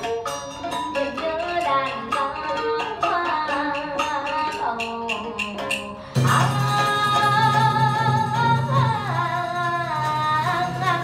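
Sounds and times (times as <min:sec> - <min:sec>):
sharp percussion strikes: 0:00.0 - 0:11.0.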